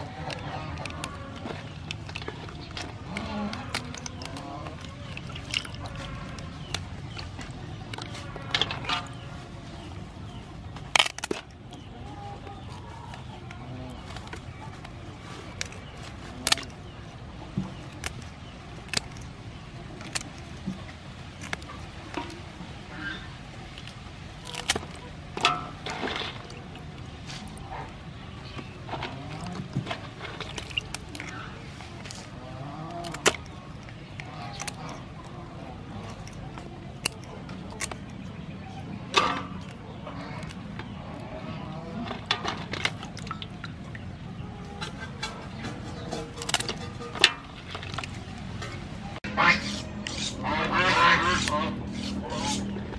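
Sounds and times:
crab shell crunch: 0.0s - 52.9s
scissors snipping crab shell: 10.7s - 22.4s, 23.6s - 25.8s, 30.3s - 38.4s, 45.9s - 47.2s.

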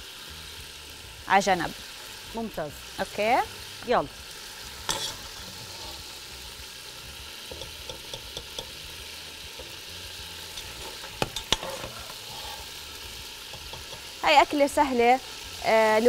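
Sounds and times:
meat sizzling in a pot: 0.0s - 16.0s
metal spoon scraping: 4.8s - 6.2s, 10.4s - 12.9s
metal spoon clinking: 7.5s - 8.8s, 10.6s - 12.0s.

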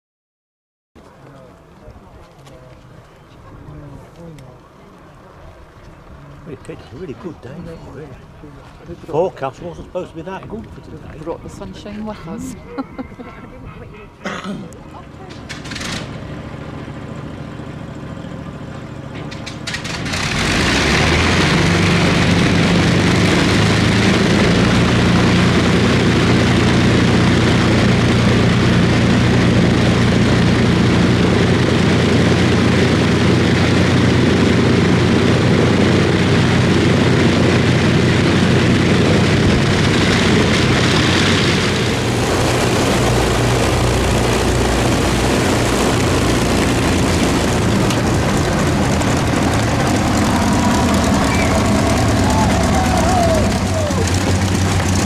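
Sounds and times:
aircraft engine starting and droning: 14.7s - 55.0s.

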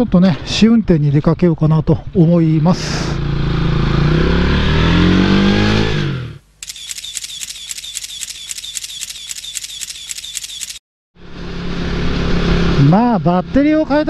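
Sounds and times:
motorcycle engine accelerating: 3.1s - 6.4s
light rhythmic clicking: 6.6s - 10.8s.

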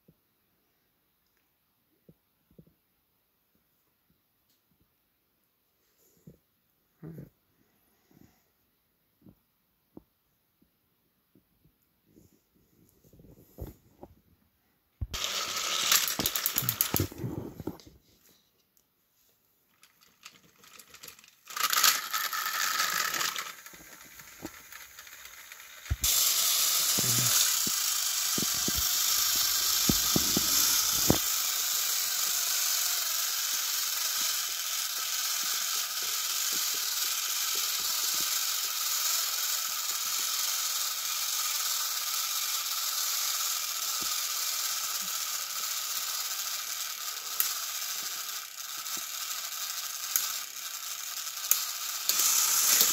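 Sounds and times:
toy motors whirring: 15.0s - 17.9s, 19.7s - 52.9s.

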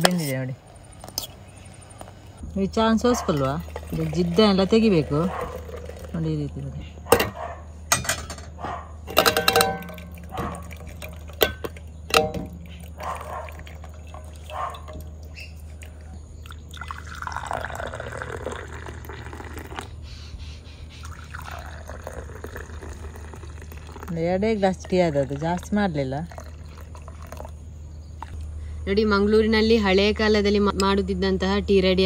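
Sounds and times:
tea pouring into glass cups: 3.2s - 6.7s, 9.2s - 20.0s, 21.0s - 27.6s
steel strainer clinking on mug: 9.1s - 10.2s.

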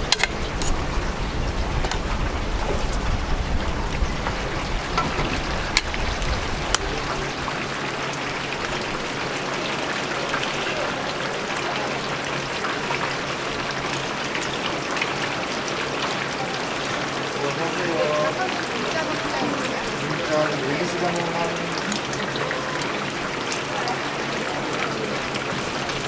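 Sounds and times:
metal tongs clacking on tray: 0.0s - 0.8s
food sizzling in deep fryer: 0.0s - 26.0s.

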